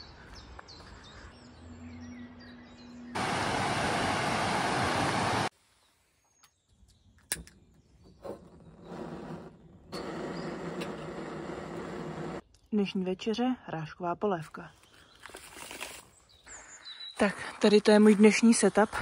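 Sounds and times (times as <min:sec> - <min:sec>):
faint outdoor background: 0:00.0 - 0:19.0
water rushing over weir: 0:03.2 - 0:05.5.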